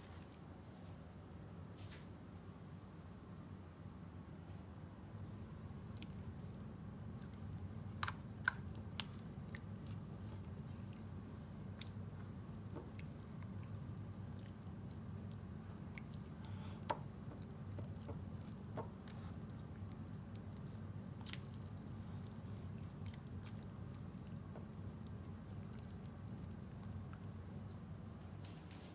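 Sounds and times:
steady low hum: 0.0s - 28.9s
soft wet squishing of meat: 5.4s - 28.6s.

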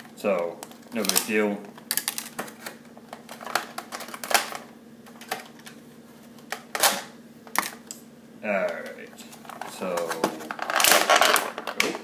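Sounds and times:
plastic packaging crinkling: 9.4s - 12.0s.

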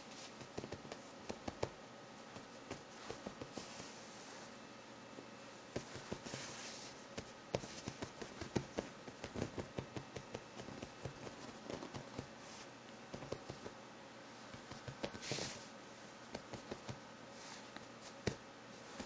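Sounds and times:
kitten paws thumping on couch: 5.8s - 6.6s, 7.2s - 12.4s.

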